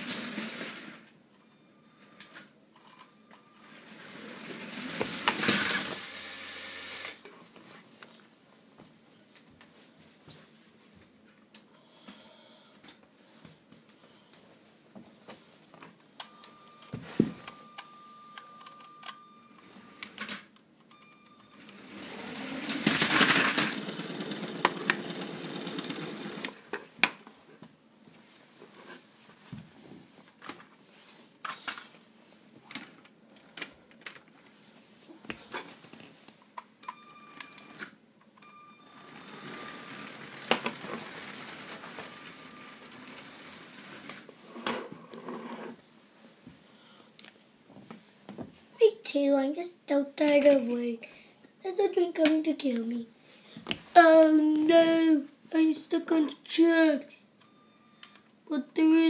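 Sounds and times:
toy train motor whirring: 0:03.7 - 0:07.2, 0:21.7 - 0:26.6, 0:39.0 - 0:44.3.

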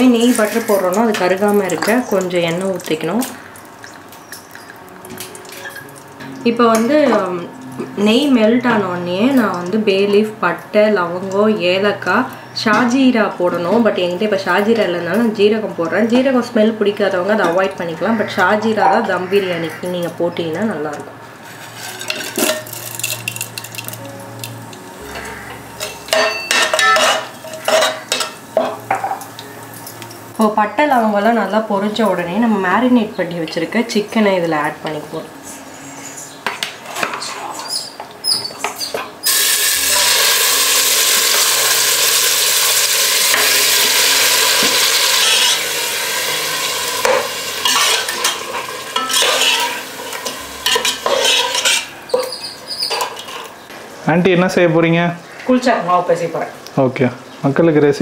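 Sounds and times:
spices sizzling in hot oil: 0:00.0 - 0:12.3, 0:21.4 - 0:32.5, 0:37.8 - 0:53.6
metal spoon scraping a pot: 0:21.5 - 0:23.5, 0:25.2 - 0:28.4, 0:44.9 - 0:46.2, 0:47.0 - 0:53.5
chicken sizzling in hot oil: 0:21.5 - 0:24.0, 0:39.2 - 0:53.0.

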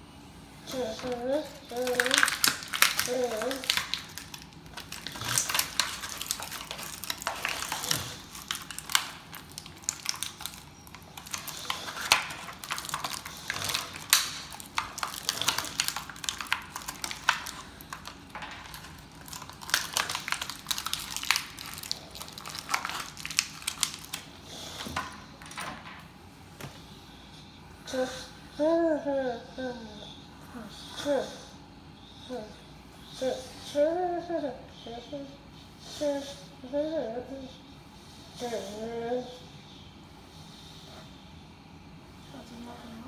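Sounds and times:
plastic toy pieces rattling: 0:00.8 - 0:24.3.

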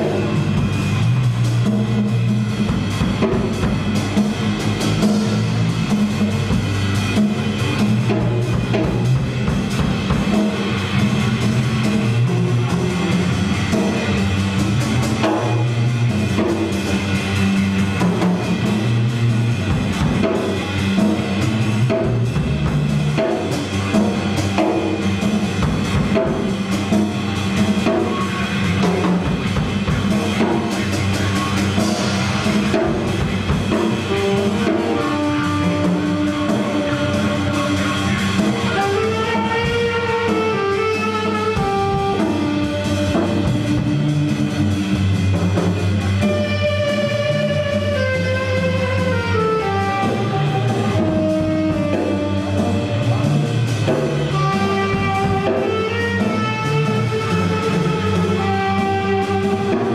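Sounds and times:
drum kit playing: 0:00.0 - 0:59.9
electric bass walking: 0:00.0 - 0:59.9
tenor saxophone: 0:23.4 - 0:45.2, 0:45.9 - 0:59.9.

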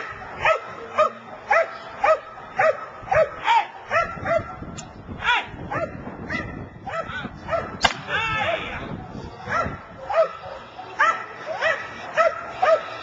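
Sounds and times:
dog barking: 0:00.0 - 0:04.6, 0:05.3 - 0:07.8, 0:09.5 - 0:13.0.

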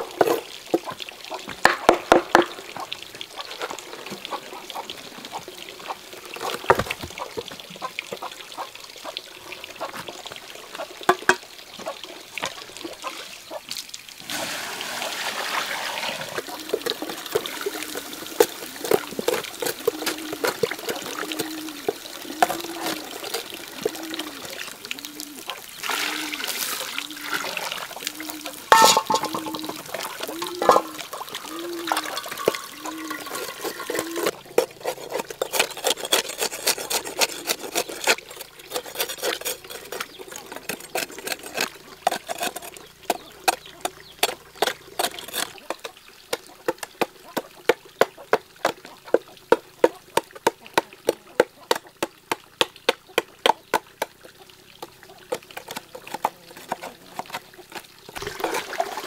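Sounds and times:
water pouring: 0:00.0 - 0:59.0
hand tool scraping wood: 0:16.2 - 0:24.0, 0:28.7 - 0:30.9, 0:31.9 - 0:47.5, 0:55.3 - 0:58.3.

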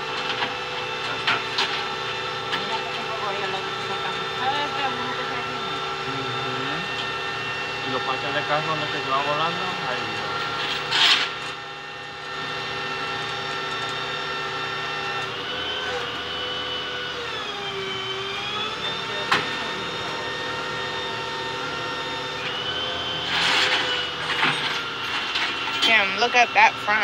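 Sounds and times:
vehicle engine running: 0:00.0 - 0:16.5.

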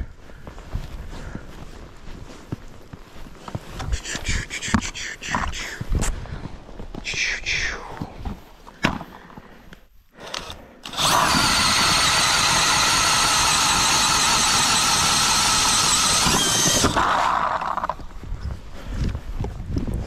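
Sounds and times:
drill clicks: 0:10.2 - 0:18.0
drill motor whine: 0:10.2 - 0:18.0
low whir: 0:10.3 - 0:18.1.

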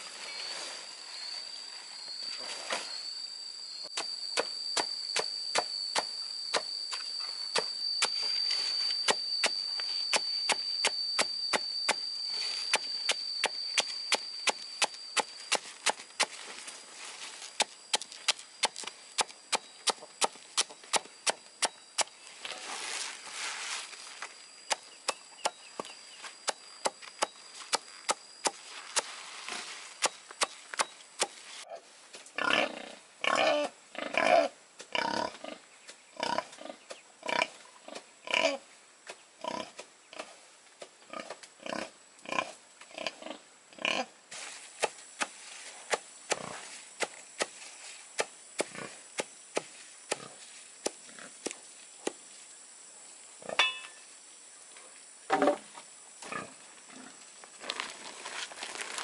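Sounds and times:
high insect buzz: 0:00.0 - 0:59.0
sharp chopping strikes: 0:12.7 - 0:16.4, 0:17.6 - 0:22.1, 0:48.2 - 0:52.2.

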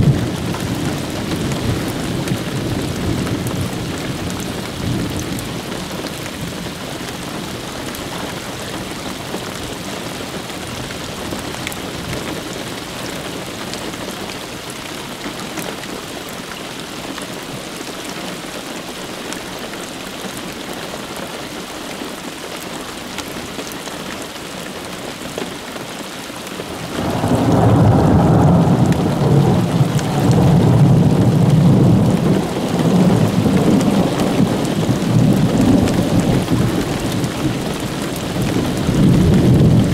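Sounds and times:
thunder rumbling: 0:00.0 - 0:06.8, 0:26.7 - 0:39.9
steady rain falling: 0:00.0 - 0:39.9.

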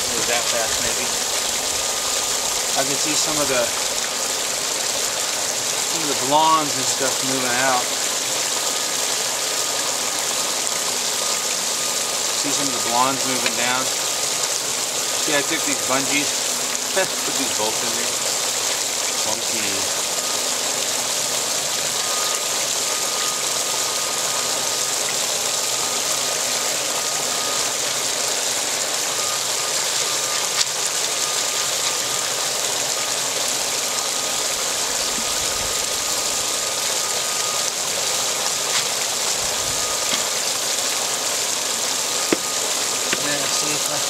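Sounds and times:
water rushing down sluice: 0:00.0 - 0:44.0.

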